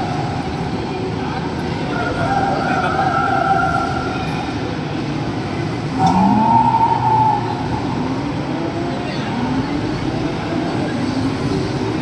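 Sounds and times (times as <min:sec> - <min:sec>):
rising electronic tone: 0:06.0 - 0:08.6.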